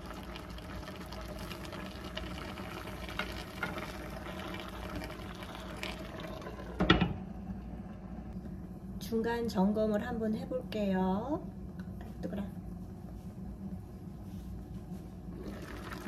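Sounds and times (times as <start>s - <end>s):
food simmering in a frying pan: 0.0s - 7.1s, 15.4s - 16.0s.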